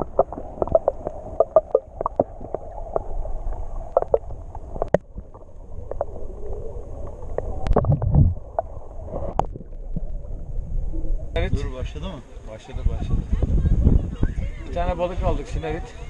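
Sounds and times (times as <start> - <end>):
underwater clicks and knocks: 0.0 - 3.1, 3.9 - 6.2, 7.4 - 8.7, 9.3 - 10.2
underwater low rumble: 0.0 - 15.5.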